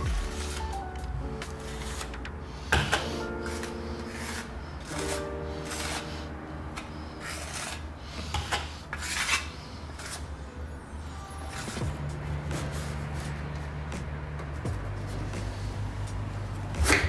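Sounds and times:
metal spatula scraping paste: 0.0 - 10.3.

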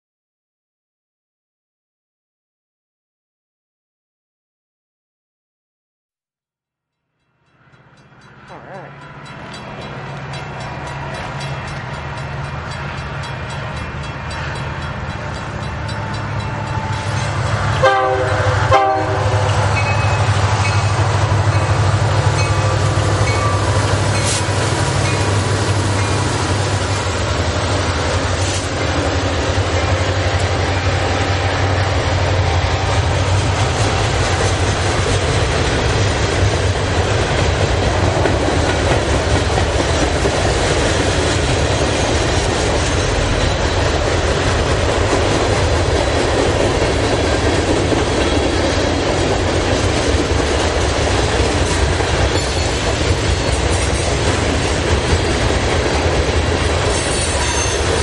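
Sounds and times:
locomotive engine drone: 7.3 - 58.0
freight car wheels rumbling on rails: 19.2 - 58.0.

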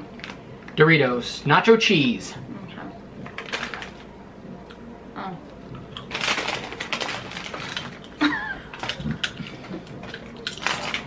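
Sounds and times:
tortilla chip crunching: 5.9 - 11.0.

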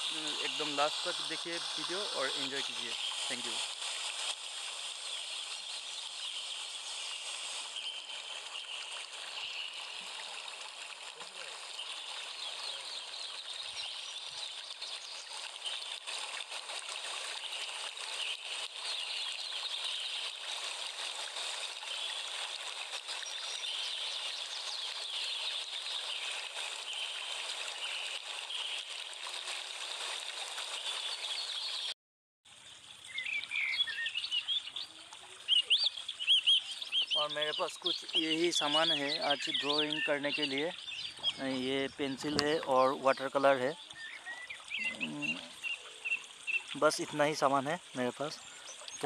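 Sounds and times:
small birds chirping: 0.0 - 3.6, 11.3 - 16.2, 33.1 - 49.0
steady hiss: 0.0 - 13.9, 37.2 - 43.8, 44.8 - 49.0.

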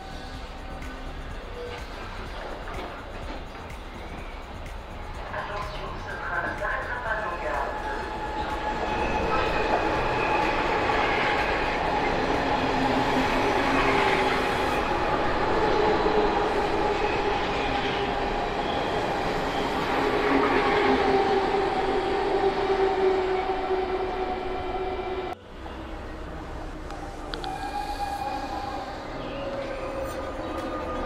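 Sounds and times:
train rail rumble: 0.0 - 31.0
train motor whine: 7.7 - 31.0.

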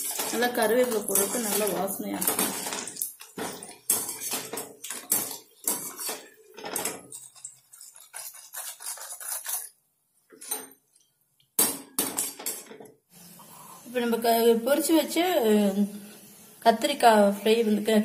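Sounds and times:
wire strainer scraping steel pan: 0.0 - 9.7.

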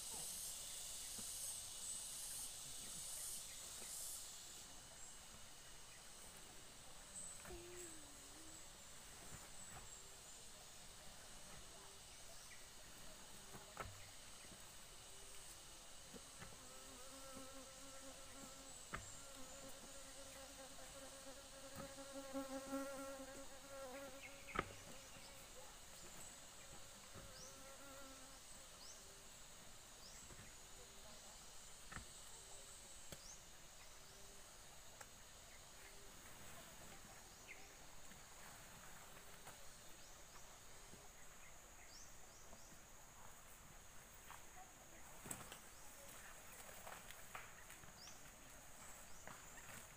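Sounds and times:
flying insect buzzing: 0.0 - 10.0, 13.4 - 29.2.

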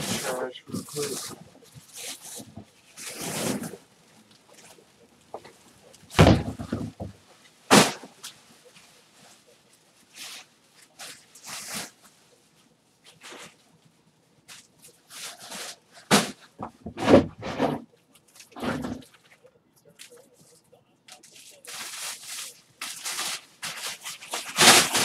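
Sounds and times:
rustling and handling noise: 0.0 - 25.0
heavy thud: 6.1 - 7.1.

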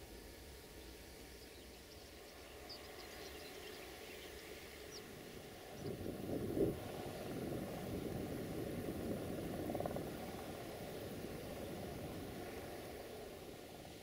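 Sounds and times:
low vehicle engine rumble: 0.0 - 14.0
faint bird chirps: 0.6 - 6.0.

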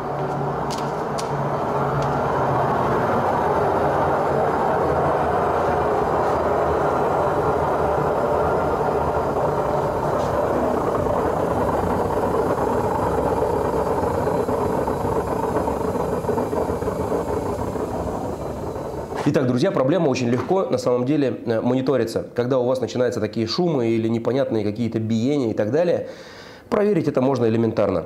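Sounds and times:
washing machine drum spinning: 0.0 - 19.6.

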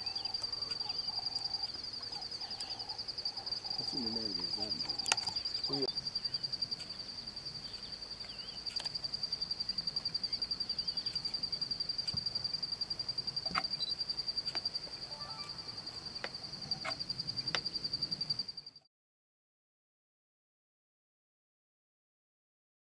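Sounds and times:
cricket trilling: 0.0 - 18.8
faint clicks: 4.7 - 5.8.

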